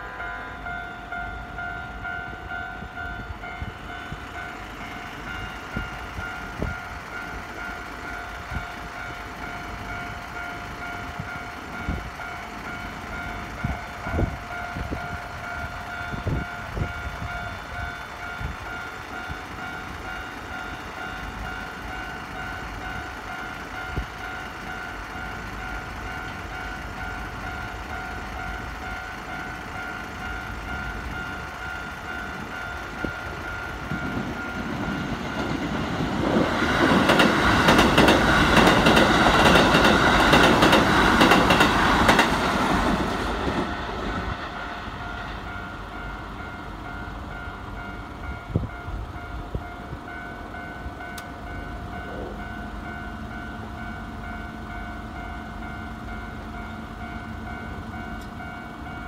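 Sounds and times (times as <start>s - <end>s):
train wheels clattering over rails: 33.0s - 44.6s.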